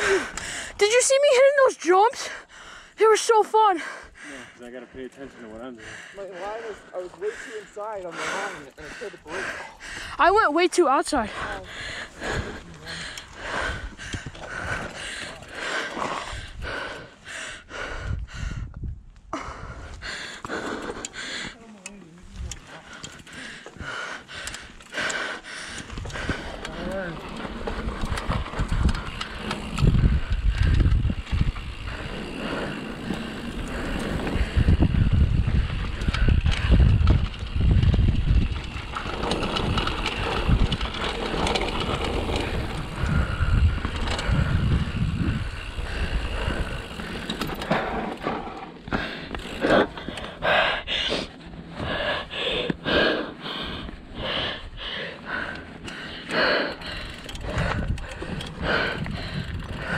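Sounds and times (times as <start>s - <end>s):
bike tyres over dirt: 11.1s - 17.3s, 19.9s - 59.9s
wind rumble: 11.3s - 21.4s, 22.2s - 59.9s.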